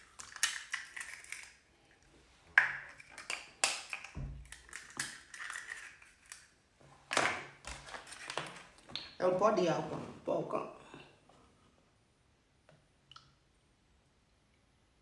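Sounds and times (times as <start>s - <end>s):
knife cracking eggshells: 0.0s - 1.6s, 2.6s - 6.5s.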